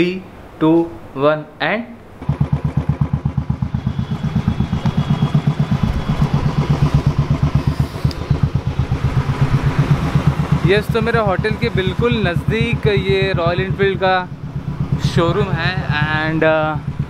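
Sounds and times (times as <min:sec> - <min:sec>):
motorcycle engine running: 0:02.2 - 0:17.0.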